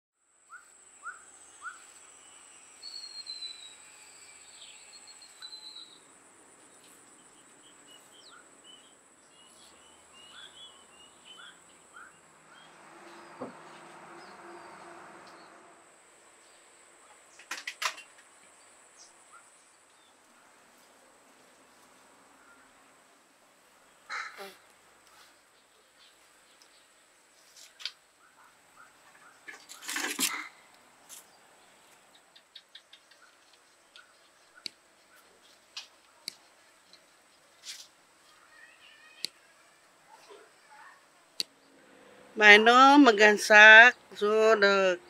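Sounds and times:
small birds chirping: 0:00.5 - 0:13.4, 0:27.7 - 0:41.8
high-pitched insect drone: 0:00.9 - 0:06.1.

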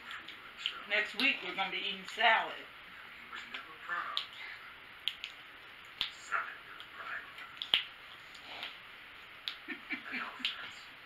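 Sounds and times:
low hummed voice sounds: 0:06.1 - 0:07.6, 0:09.6 - 0:11.0.

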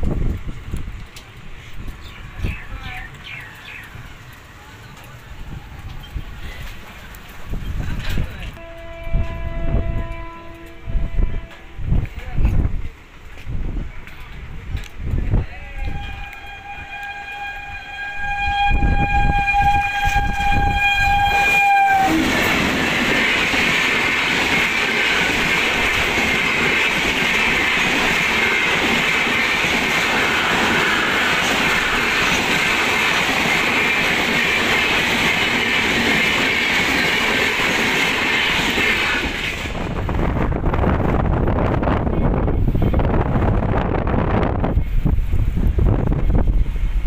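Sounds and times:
train coaches rattling on rails: 0:00.0 - 0:47.0
train horn: 0:08.5 - 0:12.0, 0:15.7 - 0:22.6.

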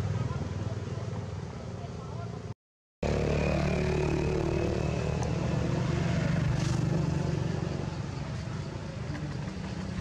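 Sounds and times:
motor engine running: 0:03.0 - 0:08.1.

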